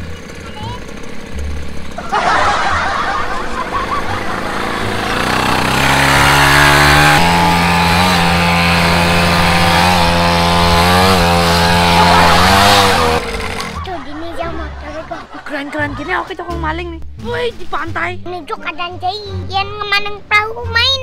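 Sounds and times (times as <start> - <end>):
dirt bike engine revving: 0.0 - 14.1.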